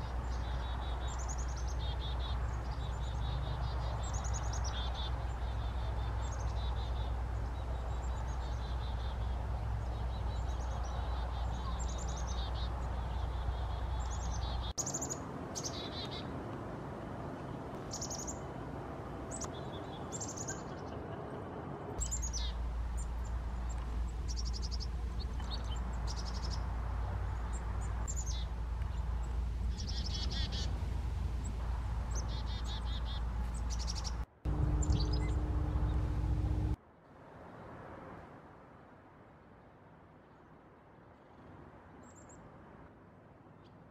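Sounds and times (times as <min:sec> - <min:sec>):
low background rumble: 0:21.0 - 0:36.8
chickadees calling: 0:32.0 - 0:36.8
loud low hum: 0:34.5 - 0:36.8.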